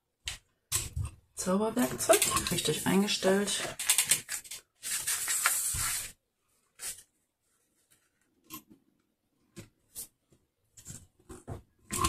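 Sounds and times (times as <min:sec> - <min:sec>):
paper card rustling: 0:02.0 - 0:08.3.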